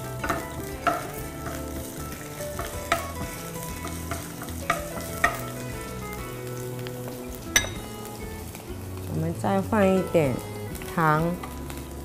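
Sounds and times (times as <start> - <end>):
ginger sizzling in hot oil: 0.0 - 12.0
spatula knocking against pan: 3.8 - 5.4.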